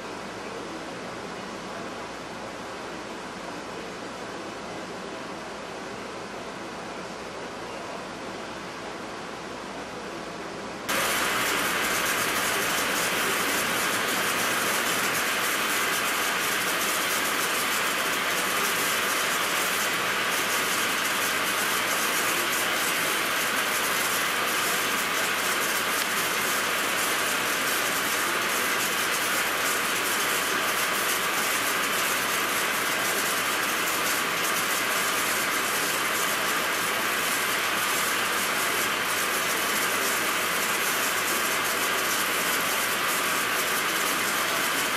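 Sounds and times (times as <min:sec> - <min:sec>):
hiss of cutting: 0:10.9 - 0:44.9
lathe running: 0:10.9 - 0:44.9.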